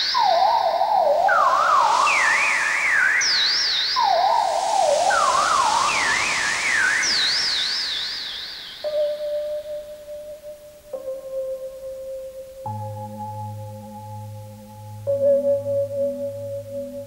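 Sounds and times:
steady hiss: 0.0s - 17.0s
warbling electronic tones: 0.2s - 9.0s.

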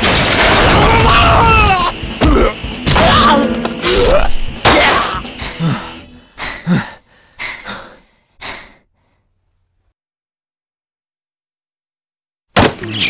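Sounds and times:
person gasping breaths: 5.3s - 9.4s.

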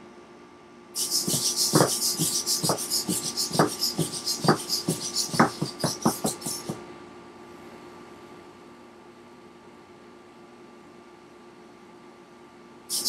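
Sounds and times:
servos whirring in bursts: 1.0s - 6.8s
robot feet knocking on wooden floor: 1.1s - 6.8s.

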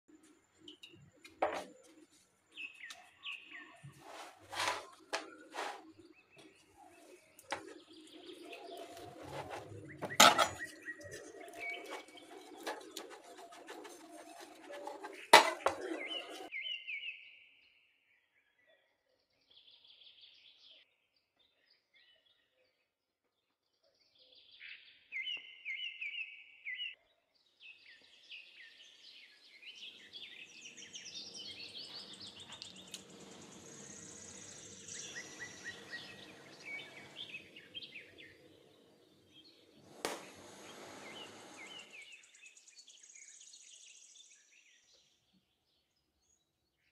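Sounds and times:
birds chirping: 0.1s - 16.8s, 27.7s - 44.4s.

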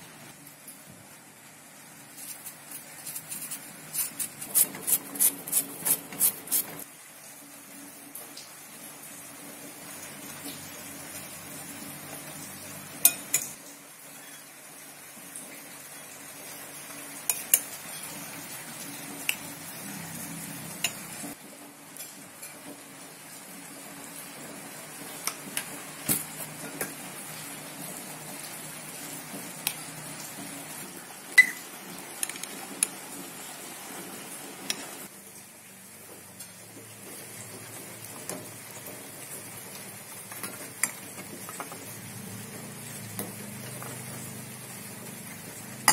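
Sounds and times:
spoon stirring salad in bowl: 2.2s - 6.8s
spoon clinking against glass: 31.4s - 31.6s.

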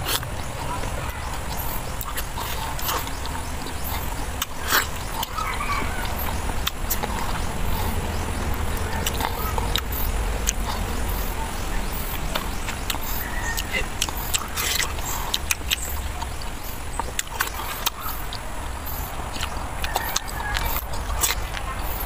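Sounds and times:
low rumble: 0.0s - 14.5s
wet mouth clicks and smacks eating: 1.5s - 5.4s, 6.0s - 10.9s, 12.1s - 21.7s.

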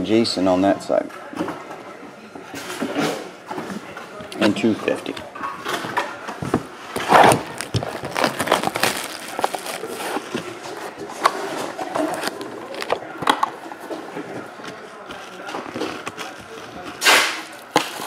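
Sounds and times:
shrink wrap crinkling and tearing: 7.0s - 13.1s, 14.5s - 18.0s.

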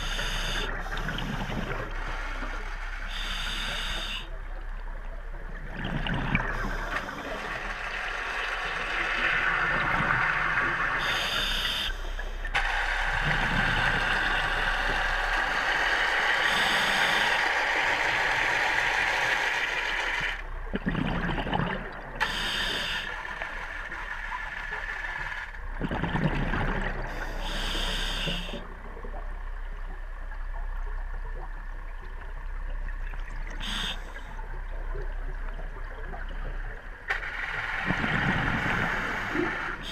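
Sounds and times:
regulator breathing hiss: 0.0s - 2.0s, 3.0s - 4.3s, 11.0s - 12.5s, 13.4s - 19.8s, 22.2s - 23.4s, 27.1s - 28.7s, 33.6s - 34.3s, 37.5s - 39.9s
underwater bubbling: 0.0s - 39.9s.

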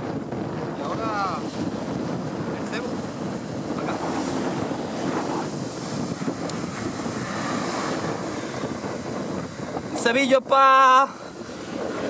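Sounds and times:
surf breaking on shore: 0.0s - 12.0s
wind buffeting microphone: 0.0s - 12.0s.

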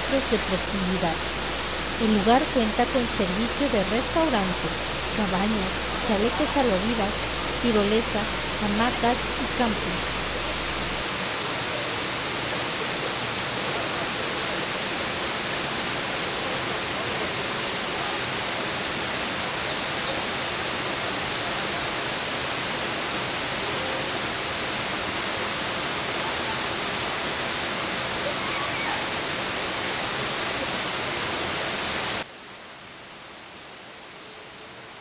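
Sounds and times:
waterfall roaring: 0.0s - 32.2s.

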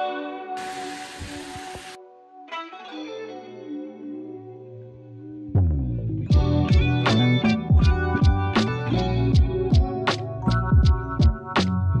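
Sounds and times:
guitar background music: 0.0s - 12.0s
vegetables sizzling in frying pan: 0.6s - 2.0s.

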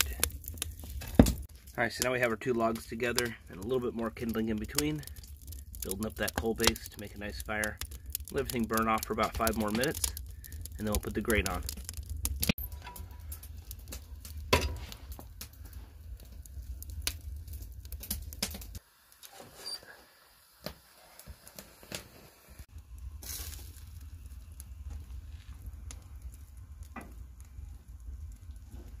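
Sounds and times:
wood fire crackling and popping: 0.0s - 29.0s
low rumble: 22.7s - 29.0s.

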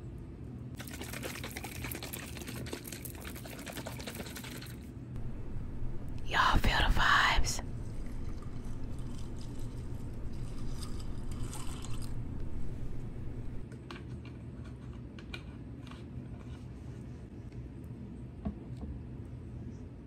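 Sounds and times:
juice pouring onto cereal: 0.8s - 4.9s, 7.8s - 12.7s.

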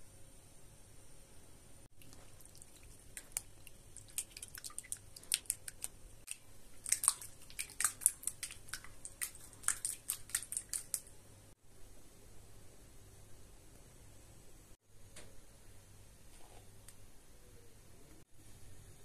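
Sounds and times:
spatula stirring in bowl: 2.0s - 11.1s.

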